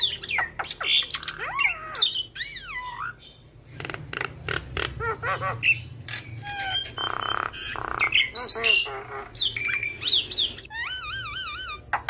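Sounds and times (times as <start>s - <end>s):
bird singing varied song: 0.0s - 12.0s.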